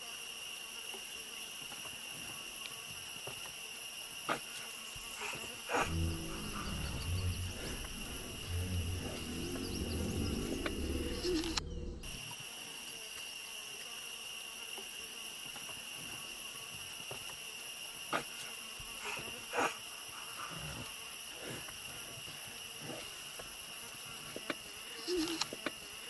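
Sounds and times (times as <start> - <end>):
insect chorus drone: 0.0 - 26.0
low rumble: 5.8 - 12.2.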